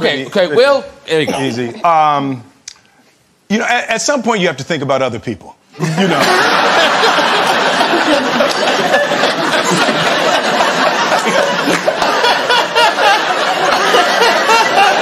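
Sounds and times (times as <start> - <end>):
audience laughing: 5.8 - 15.0.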